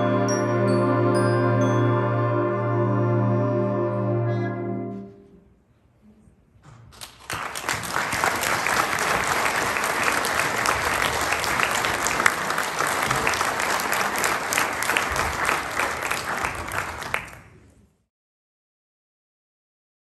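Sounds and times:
audience applauding: 7.0s - 17.7s.

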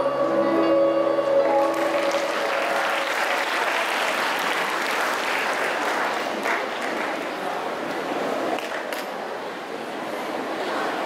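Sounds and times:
audience applauding: 1.4s - 7.7s, 8.5s - 9.0s.

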